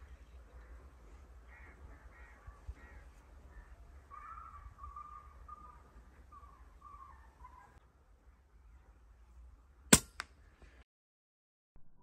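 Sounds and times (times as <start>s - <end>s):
birds calling: 0.0s - 9.0s.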